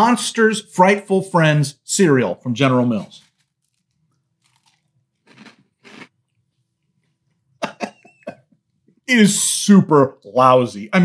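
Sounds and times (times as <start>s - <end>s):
man chewing crunchy cereal: 3.2s - 6.1s.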